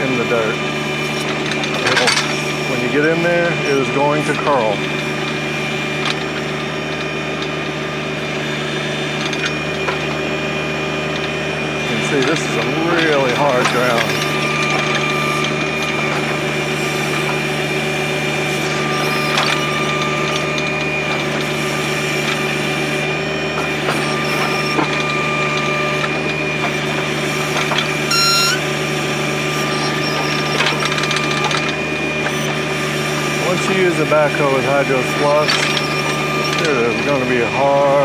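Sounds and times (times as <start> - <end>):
diesel tractor engine under load: 0.0 - 38.0
steady high whine: 27.5 - 32.6
brief high squeal: 28.1 - 28.6.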